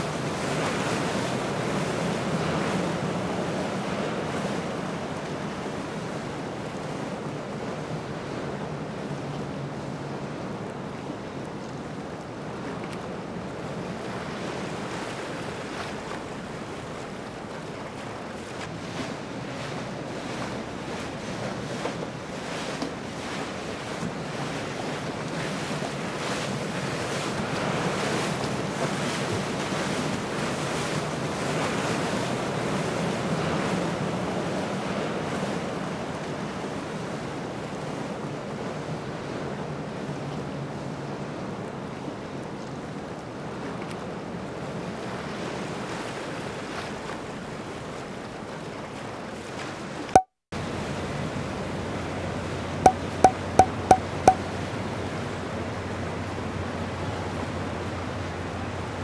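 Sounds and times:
outboard engines droning: 0:00.0 - 0:59.0
water rushing in boat wake: 0:00.0 - 0:59.0.

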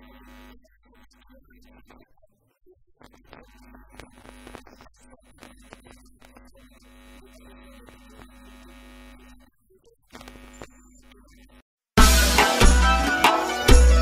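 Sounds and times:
loud music with drums: 0:12.0 - 0:14.0.

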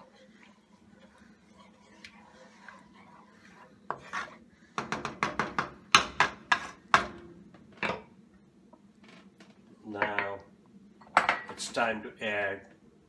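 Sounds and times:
wooden spatula scraping metal pan: 0:00.0 - 0:05.3, 0:06.2 - 0:06.8.

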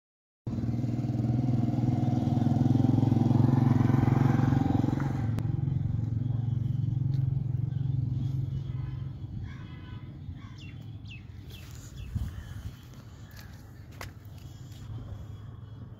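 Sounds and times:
engine running: 0:00.5 - 0:15.9.

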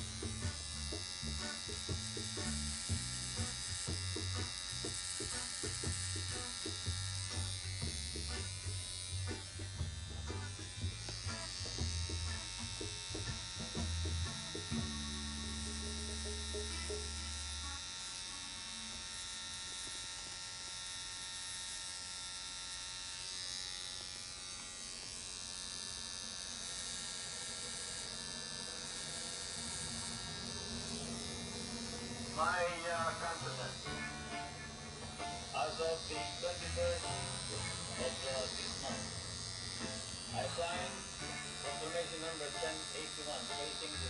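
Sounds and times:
tattoo machine buzzing: 0:00.0 - 0:44.0
low hum: 0:28.0 - 0:36.1.

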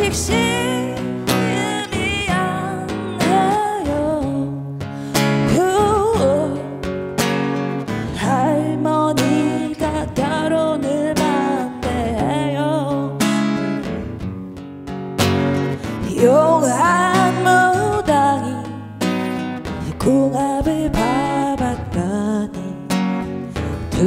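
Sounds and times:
woman singing blues: 0:00.0 - 0:14.4, 0:15.4 - 0:24.0
guitar strumming chords: 0:00.0 - 0:24.0.

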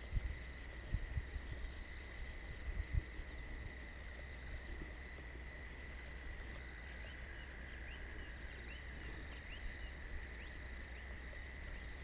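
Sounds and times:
steady hiss: 0:00.0 - 0:12.0
faint bird chirps: 0:05.6 - 0:12.0.

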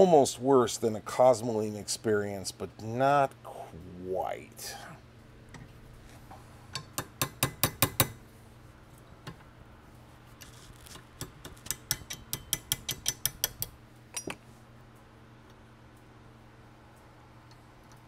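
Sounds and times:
small hammer tapping metal pin: 0:11.2 - 0:14.4.

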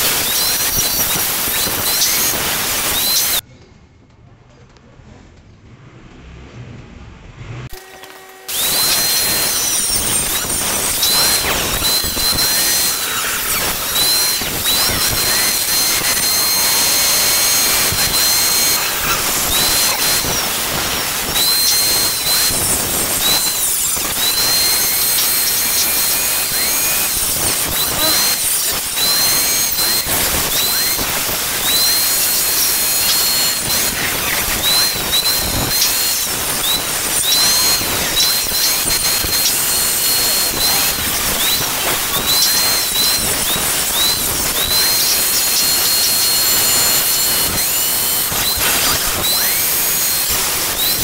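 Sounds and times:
angle grinder cutting metal: 0:00.0 - 0:03.4, 0:07.7 - 0:51.0.

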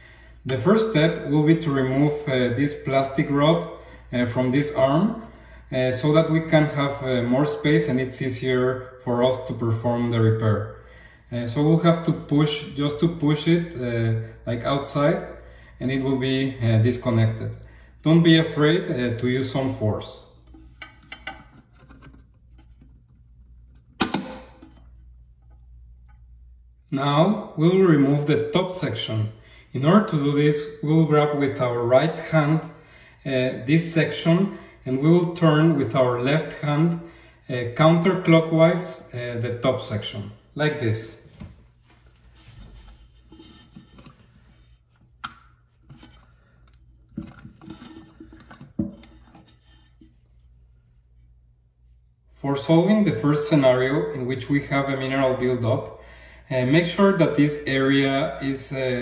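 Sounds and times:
plastic scraping and rustling: 0:20.5 - 0:24.0, 0:41.3 - 0:50.4.

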